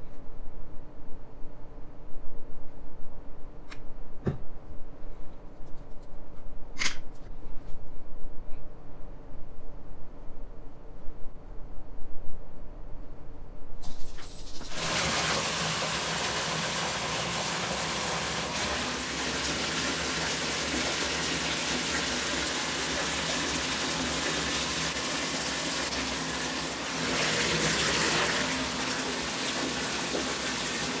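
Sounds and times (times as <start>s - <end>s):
bath tap gushing water: 14.0s - 31.0s.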